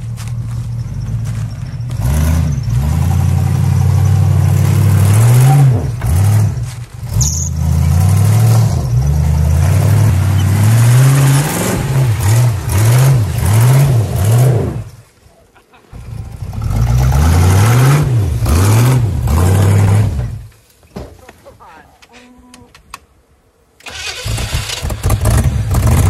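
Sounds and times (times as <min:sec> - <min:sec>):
car engine revving: 0:00.0 - 0:15.0, 0:16.0 - 0:20.5, 0:23.9 - 0:26.0.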